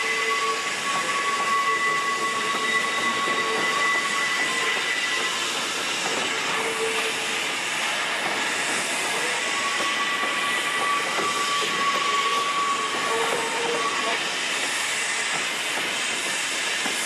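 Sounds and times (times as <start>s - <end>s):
faint high wheel squeal: 0.0s - 7.5s, 9.0s - 14.4s
train wheels rushing on rail: 0.0s - 17.0s.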